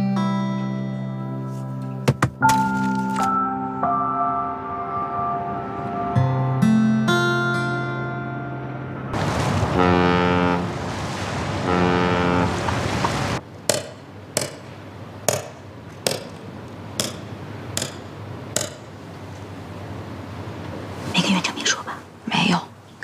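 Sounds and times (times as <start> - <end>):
river and city noise: 2.5 - 23.0
ship's horn blasts: 4.9 - 13.3.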